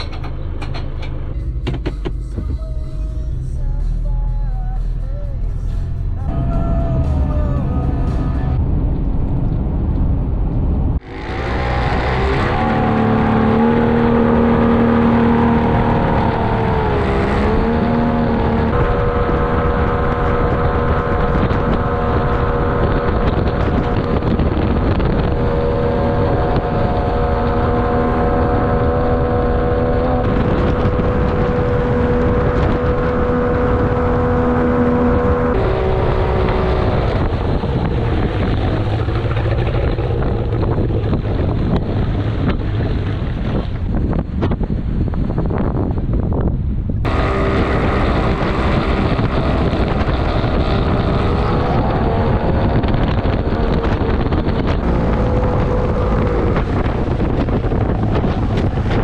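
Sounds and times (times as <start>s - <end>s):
boat engine running: 0.0s - 59.0s.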